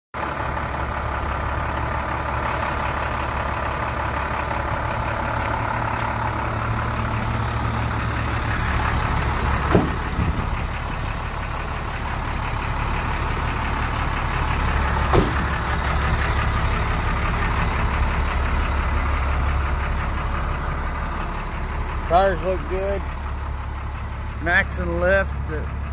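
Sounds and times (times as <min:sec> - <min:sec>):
diesel engine idling: 0:00.2 - 0:25.9
sharp knocks: 0:09.7 - 0:10.5, 0:15.1 - 0:15.6.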